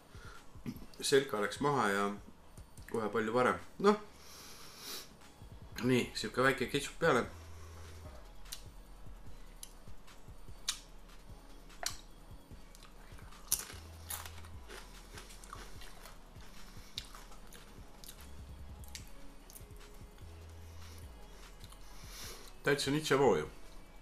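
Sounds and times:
person crunching tortilla chip: 12.8s - 16.2s, 16.9s - 18.2s.

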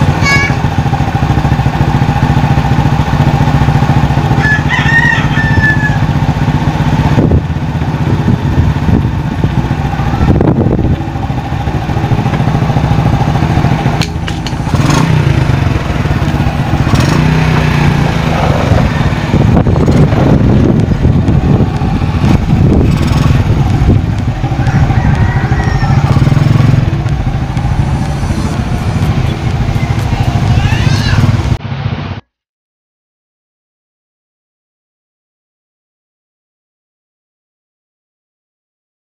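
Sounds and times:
motorcycle engine revving: 0.0s - 32.3s
rooster crowing: 4.3s - 6.2s, 24.4s - 26.4s.

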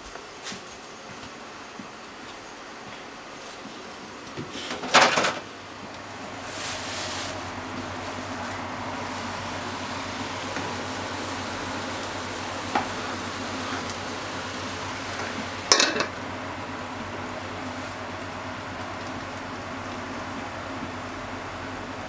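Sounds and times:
food sizzling in a frying pan: 6.1s - 22.0s
glass lid clattering on pan: 15.7s - 16.2s.

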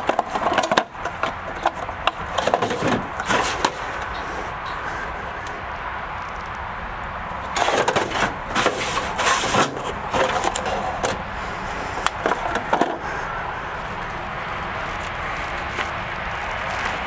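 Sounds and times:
metal drawer sliding open: 2.3s - 4.0s, 7.5s - 11.2s.

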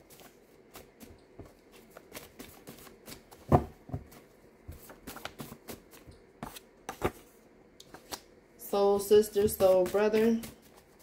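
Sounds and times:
cards being shuffled: 4.1s - 8.2s.

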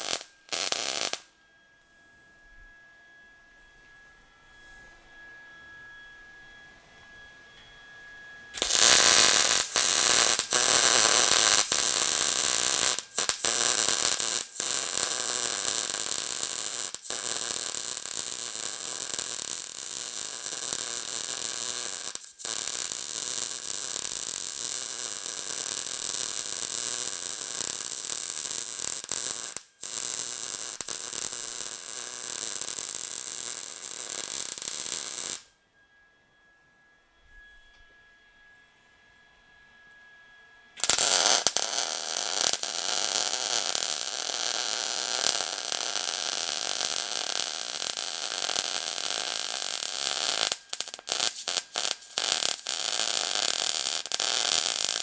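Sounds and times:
welding arc crackling: 0.0s - 1.2s, 8.6s - 35.5s, 40.8s - 55.0s.

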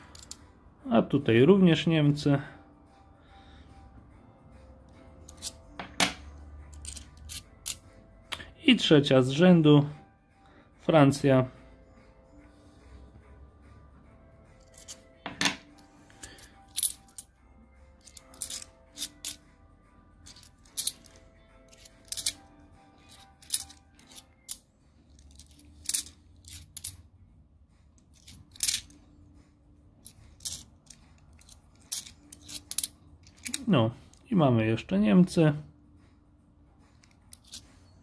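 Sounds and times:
coins clinking: 0.0s - 0.4s, 5.2s - 7.8s, 14.6s - 17.3s, 17.9s - 19.4s, 20.2s - 27.0s, 28.1s - 29.0s, 30.0s - 33.7s, 37.0s - 37.7s
faint background music: 0.0s - 38.0s.

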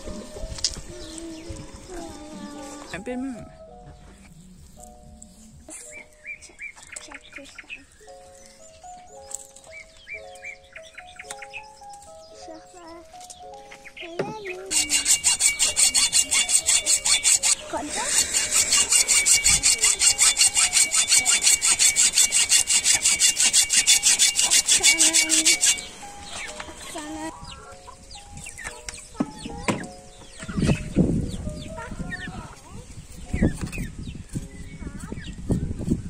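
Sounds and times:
hacksaw sawing through bone: 14.6s - 27.0s.

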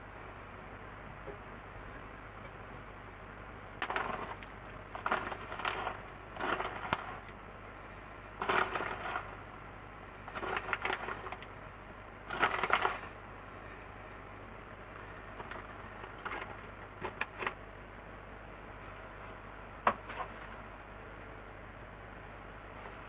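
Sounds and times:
plastic bag crinkling: 3.8s - 7.3s, 8.4s - 9.4s, 10.3s - 11.5s, 12.3s - 13.2s.

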